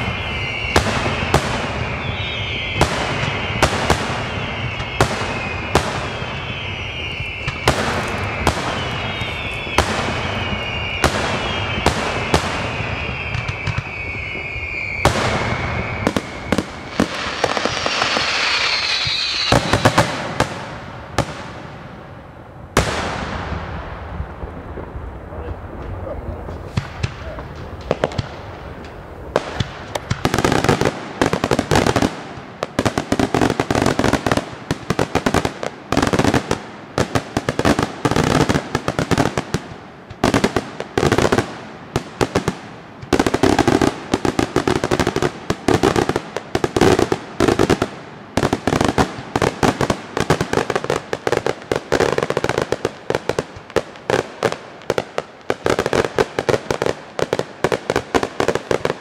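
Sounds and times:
fireworks bursts and crackling: 0:00.0 - 0:59.0.

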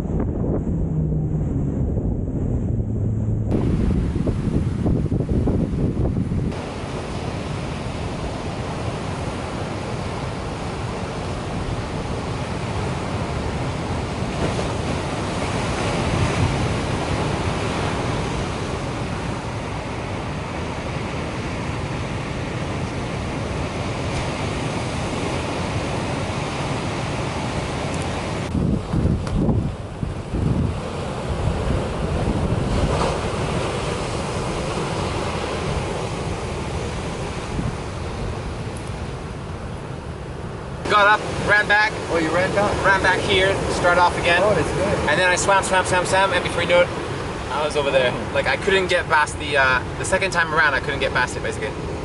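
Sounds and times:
wind buffeting microphone: 0:00.0 - 0:48.3
ocean surf breaking: 0:00.0 - 0:52.0.

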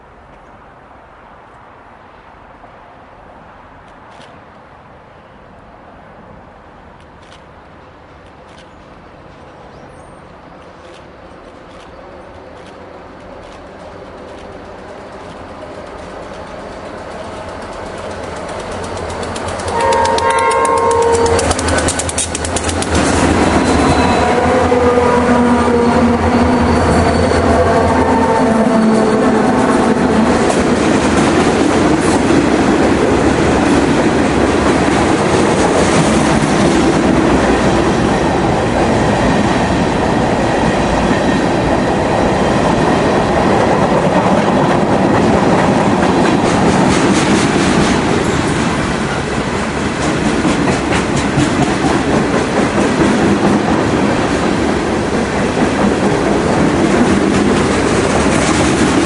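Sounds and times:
train wheels rumbling and rattling: 0:10.4 - 0:59.0
wheels clicking over rail joints: 0:10.6 - 0:24.1, 0:49.8 - 0:59.0.

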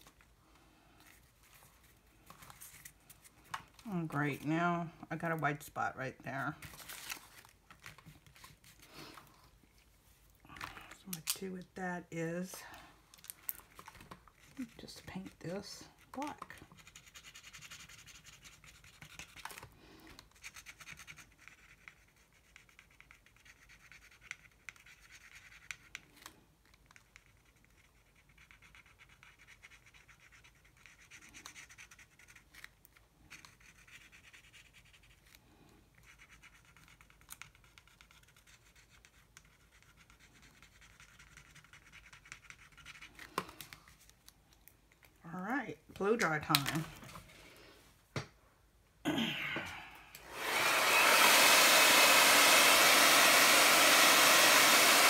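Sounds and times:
marker scratching on card: 0:16.2 - 0:19.4, 0:20.3 - 0:26.1, 0:26.9 - 0:35.3, 0:35.9 - 0:43.4.

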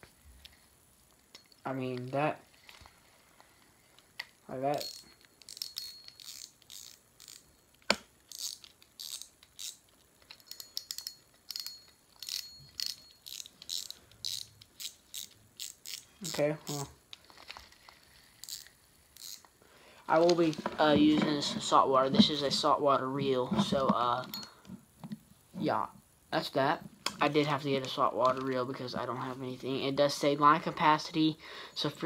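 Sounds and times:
fishing reel clicking: 0:04.7 - 0:07.5, 0:08.3 - 0:16.8, 0:18.3 - 0:19.5.

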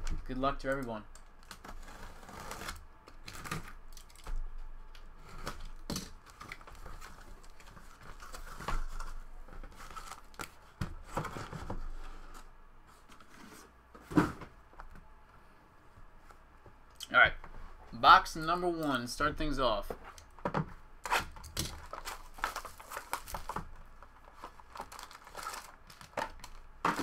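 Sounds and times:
cardboard tearing and rustling: 0:01.5 - 0:04.2, 0:21.0 - 0:27.0.

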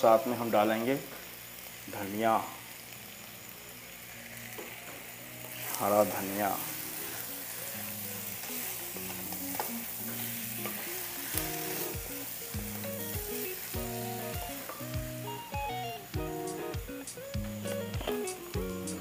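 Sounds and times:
potatoes sizzling in oil: 0:00.0 - 0:19.0
spatula stirring in a pan: 0:04.4 - 0:14.0
background music: 0:04.5 - 0:19.0.

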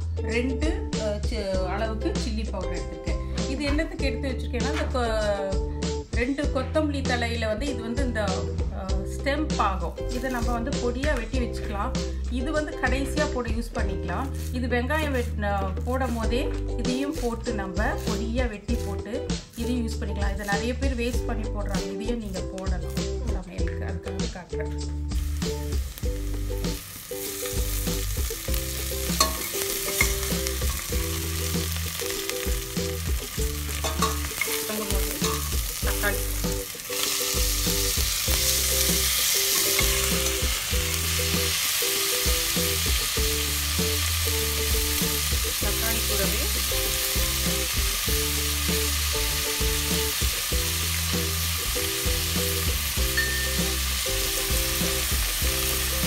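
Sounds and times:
onions sizzling in oil: 0:10.0 - 0:21.4, 0:25.0 - 0:56.0
metal spoon scraping a pot: 0:29.2 - 0:30.8, 0:33.7 - 0:35.6.

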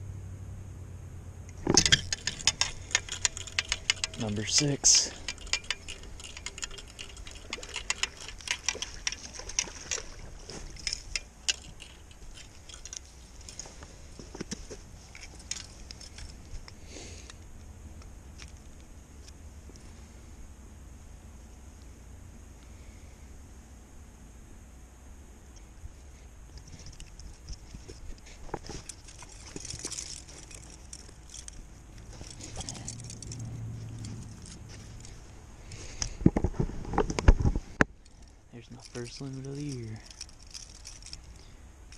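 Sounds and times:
faint low hum: 0:00.0 - 0:41.9
fishing reel clicking: 0:01.8 - 0:13.6.

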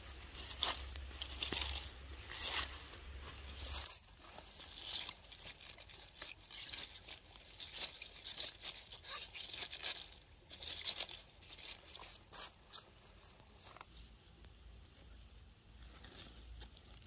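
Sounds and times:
plant stems tearing: 0:00.0 - 0:12.9
leaves and grass rustling: 0:00.0 - 0:14.1.

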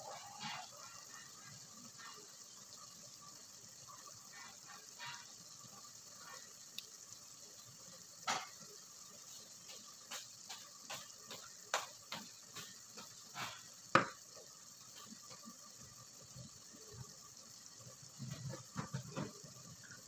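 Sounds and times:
meat sizzling in a pot: 0:00.0 - 0:20.0.

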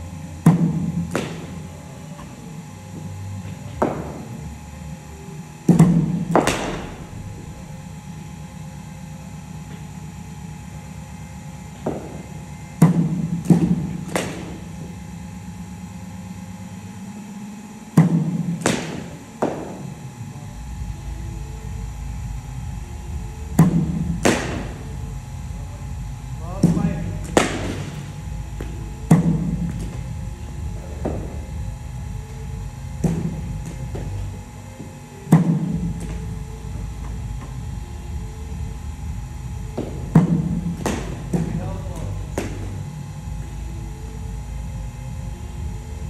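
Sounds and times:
steady low hum: 0:00.0 - 0:46.0
cricket bat striking balls: 0:00.4 - 0:04.5, 0:05.6 - 0:08.1, 0:09.5 - 0:15.4, 0:17.9 - 0:20.2, 0:23.5 - 0:25.3, 0:26.2 - 0:31.8, 0:32.6 - 0:37.6, 0:39.5 - 0:43.0.

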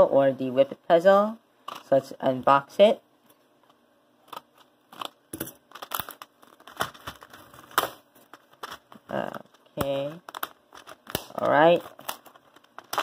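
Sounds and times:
plastic blister pack crinkling: 0:04.3 - 0:13.0.

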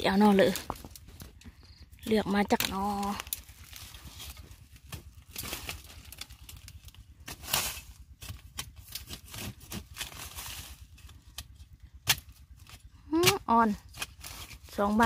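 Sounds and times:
dry leaves crackling and rustling: 0:02.1 - 0:11.5, 0:13.8 - 0:15.0.

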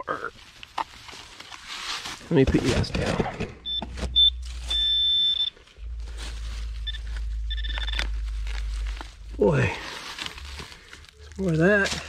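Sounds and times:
metal detector beeps: 0:03.6 - 0:05.6, 0:06.8 - 0:08.2
low rumble on microphone: 0:05.6 - 0:11.4.

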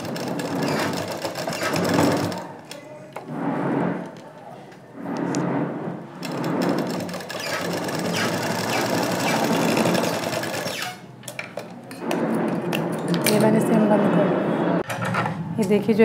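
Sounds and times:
sewing machine stitching: 0:00.0 - 0:02.5, 0:06.2 - 0:11.0.

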